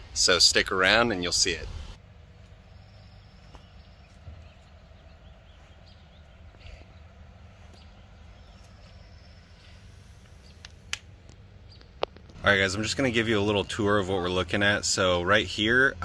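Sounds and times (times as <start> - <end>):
footsteps on concrete: 3.4 - 4.7.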